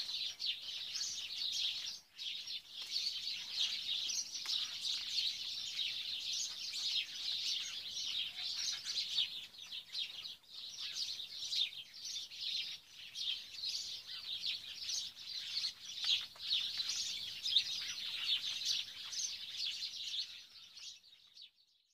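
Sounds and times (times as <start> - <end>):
small birds chirping: 0.0 - 21.9.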